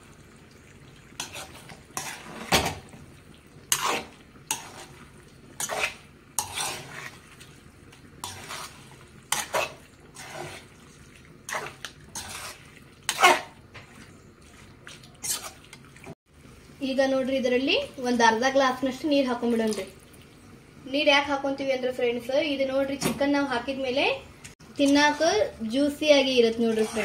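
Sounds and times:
metal spatula scraping steel pan: 0:01.2 - 0:02.8, 0:03.7 - 0:05.0, 0:05.6 - 0:07.3, 0:08.2 - 0:10.7, 0:11.5 - 0:13.9, 0:26.4 - 0:27.0.

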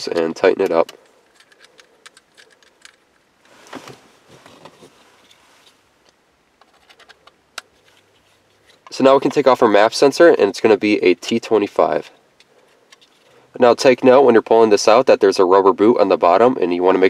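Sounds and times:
metal screws clicking and tapping: 0:00.9 - 0:03.0
rustle: 0:01.0 - 0:08.9.

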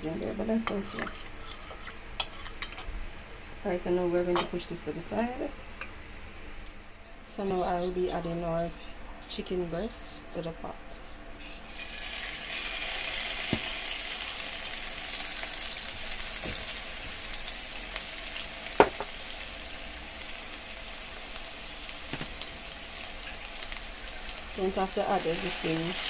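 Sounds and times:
chicken sizzling in hot oil: 0:11.6 - 0:26.0.

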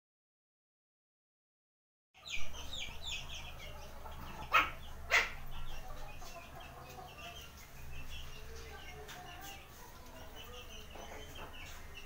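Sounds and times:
puppies yipping: 0:02.2 - 0:07.5.

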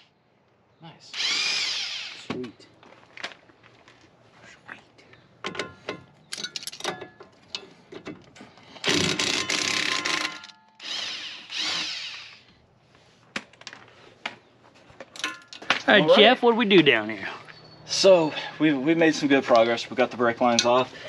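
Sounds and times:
power tool running: 0:01.2 - 0:02.3, 0:08.8 - 0:12.4.

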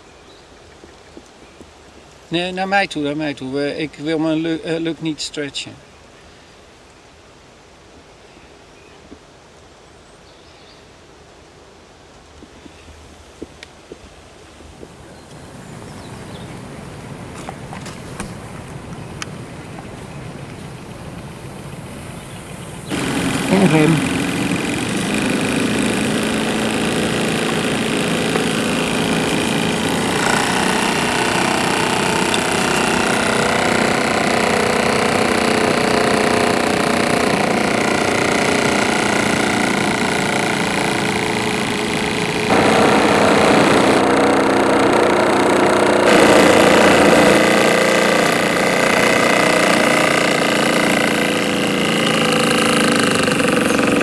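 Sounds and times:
small steam engine running: 0:22.9 - 0:54.0.

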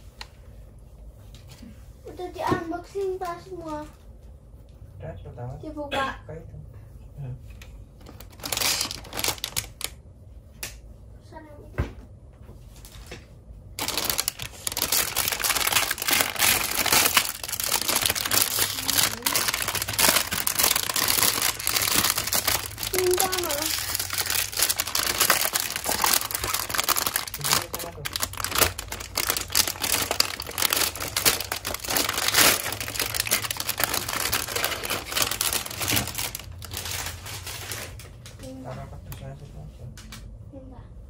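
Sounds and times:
plastic bags crinkling: 0:08.0 - 0:10.0, 0:13.8 - 0:38.0.

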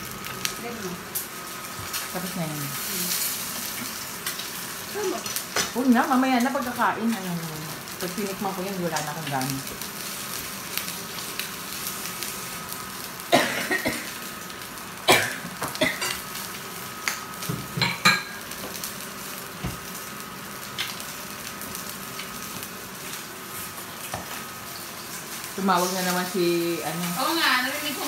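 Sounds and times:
eggs sizzling in a pan: 0:00.0 - 0:28.0
pans and utensils clinking: 0:17.6 - 0:18.4.

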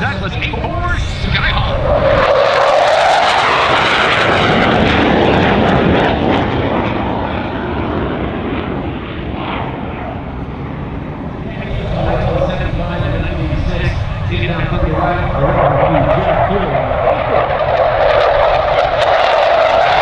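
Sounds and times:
jet rush with crackle: 0:15.0 - 0:20.0.

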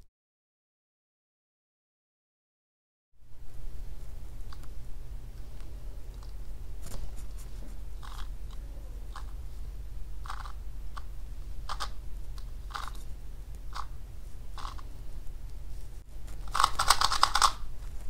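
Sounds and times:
speed cube plastic clicks: 0:10.2 - 0:11.1, 0:11.7 - 0:13.0, 0:14.6 - 0:14.9, 0:16.4 - 0:17.7.

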